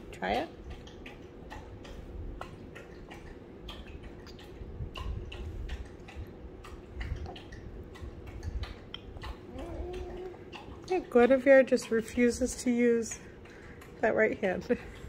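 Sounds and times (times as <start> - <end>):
baby sucking wet clicks: 0.7 - 12.4.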